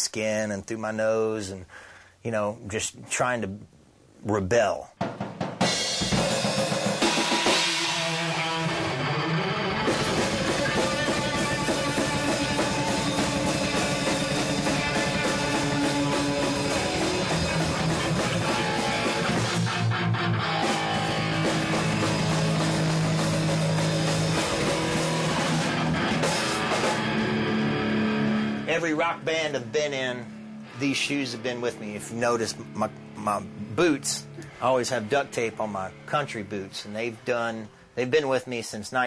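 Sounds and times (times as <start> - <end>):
drum kit: 4.6 - 37.0
rock electric guitar: 5.6 - 36.3.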